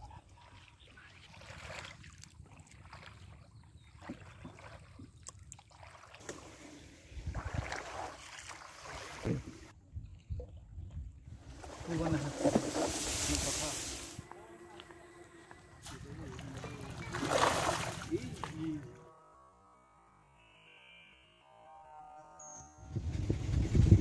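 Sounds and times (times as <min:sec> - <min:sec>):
water splashing around boat: 0:00.0 - 0:14.3, 0:15.4 - 0:18.9
wind on microphone: 0:07.1 - 0:07.8, 0:22.8 - 0:24.0.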